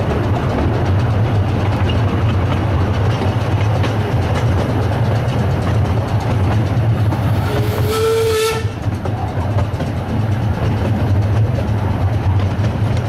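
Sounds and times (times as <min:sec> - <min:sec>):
train rumble with wheel clicks: 0:00.0 - 0:13.0
steam whistle blast: 0:07.4 - 0:08.8.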